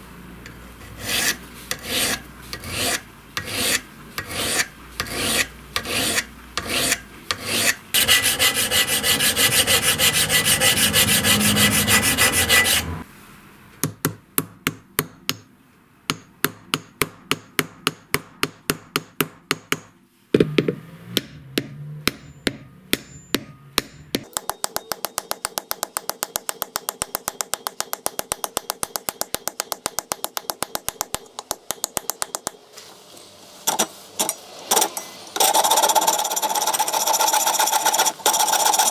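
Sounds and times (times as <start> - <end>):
file rasping on brass: 0.8 - 13.0, 35.4 - 38.9
hand saw cutting: 0.9 - 13.0, 33.7 - 38.9
sandpaper block rubbing: 0.9 - 13.0, 35.4 - 38.9.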